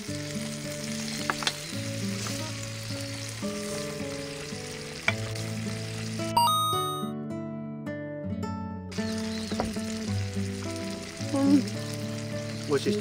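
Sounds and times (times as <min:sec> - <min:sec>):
food sizzling in skillet: 0:00.0 - 0:07.1, 0:08.9 - 0:13.0.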